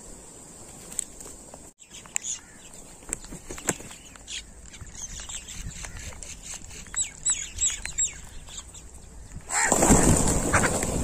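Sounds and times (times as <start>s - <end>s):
crows wingbeats: 0.7s - 11.0s
crows cawing: 2.2s - 2.7s, 5.8s - 6.2s, 9.5s - 9.7s.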